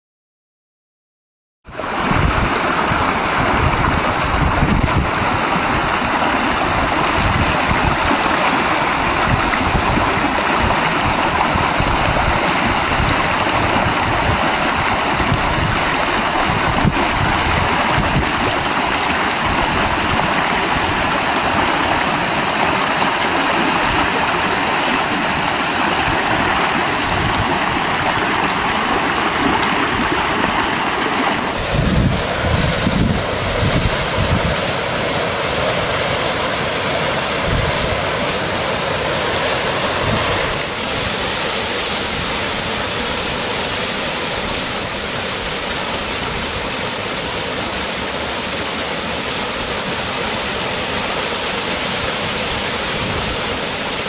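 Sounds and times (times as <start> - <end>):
waterfall and stream roaring: 1.7 - 54.0
wind buffeting microphone: 1.9 - 21.6, 25.9 - 34.7.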